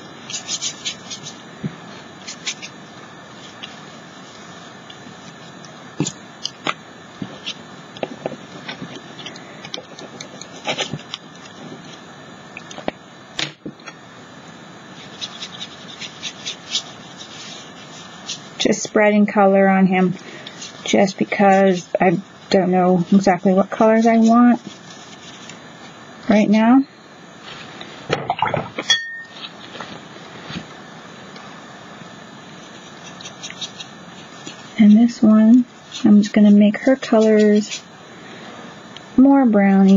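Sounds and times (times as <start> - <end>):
steady low hiss: 0.0 - 39.9
paintbrush on paper: 0.2 - 1.4, 2.2 - 6.2, 15.0 - 18.7, 22.7 - 25.5, 32.6 - 37.9
glass clink: 28.8 - 29.4.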